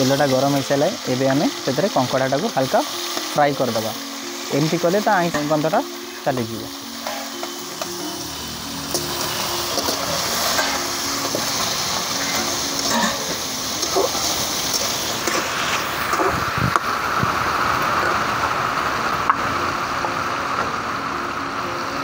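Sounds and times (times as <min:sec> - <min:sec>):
crab sizzling in hot oil: 0:00.0 - 0:22.0
metal spatula scraping a wok: 0:07.0 - 0:08.2, 0:08.9 - 0:16.0.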